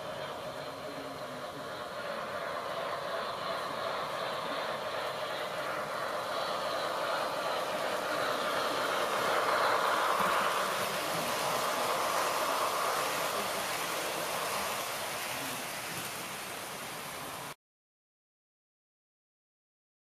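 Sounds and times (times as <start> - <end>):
model train wheels on rails: 0.0 - 17.6.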